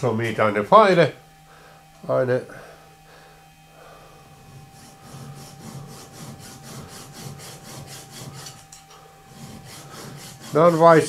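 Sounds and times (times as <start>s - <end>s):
file rasping on metal: 4.6s - 11.0s.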